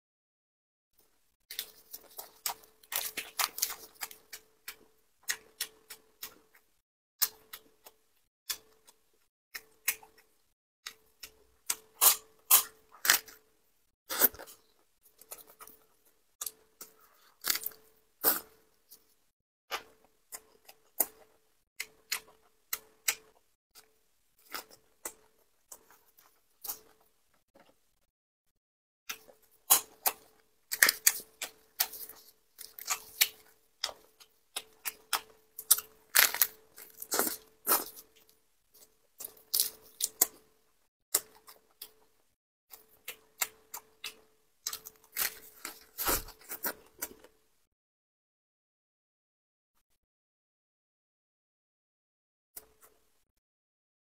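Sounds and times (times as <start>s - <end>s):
lettuce crunching when chewed: 1.5s - 9.0s, 10.9s - 13.4s, 14.1s - 19.1s, 29.1s - 40.5s, 42.7s - 47.4s.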